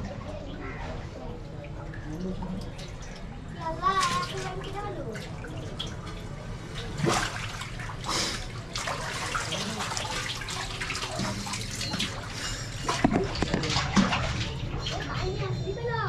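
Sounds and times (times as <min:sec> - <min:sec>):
water rushing through a channel: 0:00.0 - 0:15.3
person wading and splashing: 0:02.9 - 0:15.1.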